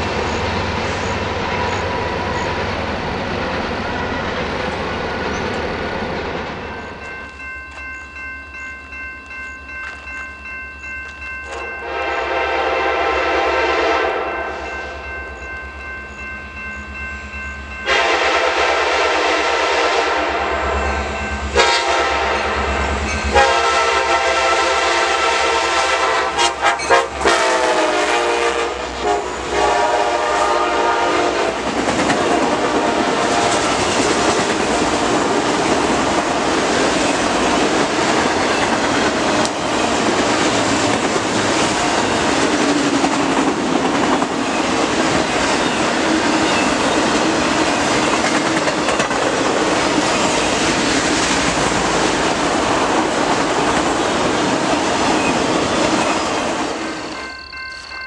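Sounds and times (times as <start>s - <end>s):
train wheels on rail: 0.0s - 58.0s
locomotive air horn: 11.8s - 14.7s, 17.8s - 31.6s, 32.2s - 33.7s.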